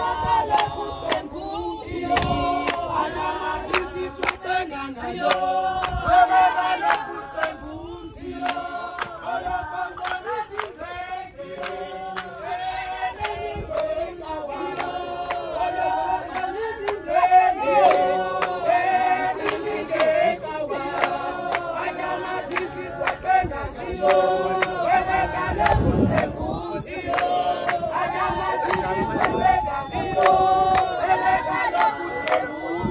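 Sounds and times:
crowd singing together: 0:00.0 - 0:32.9
hand clapping: 0:02.1 - 0:02.9, 0:03.6 - 0:04.5, 0:06.8 - 0:07.6, 0:08.4 - 0:09.2, 0:10.0 - 0:10.8, 0:11.6 - 0:12.3, 0:20.8 - 0:21.7, 0:22.4 - 0:23.3, 0:25.6 - 0:26.4, 0:27.1 - 0:29.6, 0:30.2 - 0:32.6.

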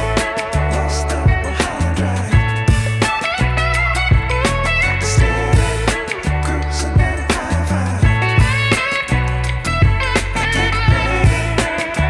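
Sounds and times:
held bass notes: 0:00.0 - 0:12.0
plucked guitar melody: 0:00.0 - 0:12.0
drum hits: 0:01.3 - 0:03.5, 0:07.0 - 0:11.8.

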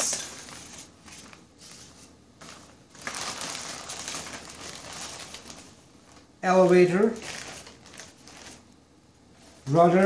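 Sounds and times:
plastic bag crinkling and rustling: 0:00.0 - 0:08.7.

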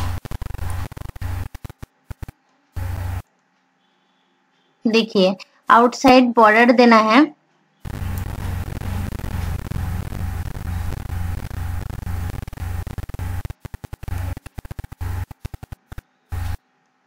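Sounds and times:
stuttering static bursts: 0:00.0 - 0:03.2, 0:07.8 - 0:16.6
electrical hum with hiss: 0:00.0 - 0:07.0, 0:07.8 - 0:17.0.

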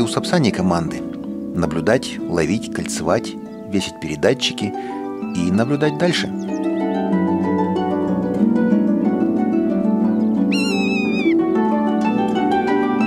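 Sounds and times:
harp background music: 0:00.0 - 0:13.0
buzzard high mewing call: 0:10.5 - 0:11.4.

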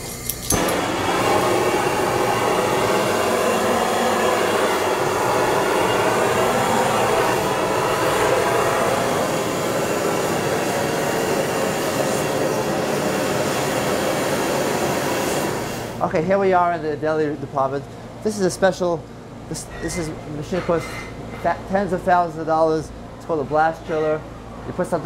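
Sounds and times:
gas torch burning: 0:00.0 - 0:16.5.

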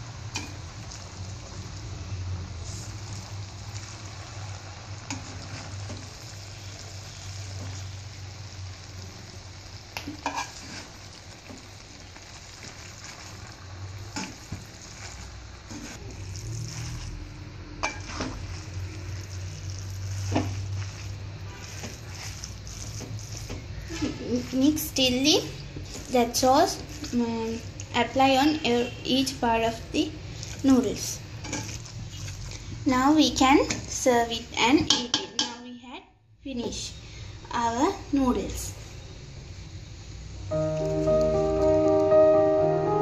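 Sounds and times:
noodles sizzling in a wok: 0:00.0 - 0:35.2
spatula scraping a wok: 0:02.6 - 0:08.3, 0:10.1 - 0:27.8, 0:30.2 - 0:32.8.

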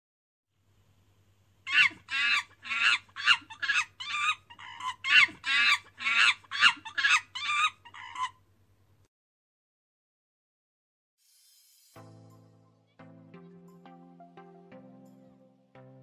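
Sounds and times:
monkey screeching chatters: 0:01.7 - 0:08.4.

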